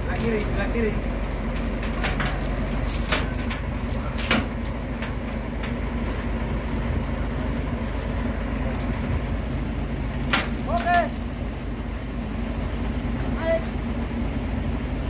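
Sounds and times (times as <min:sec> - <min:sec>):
steel chains clanking: 0:00.0 - 0:09.2, 0:10.2 - 0:11.4
truck engine running: 0:00.0 - 0:15.0.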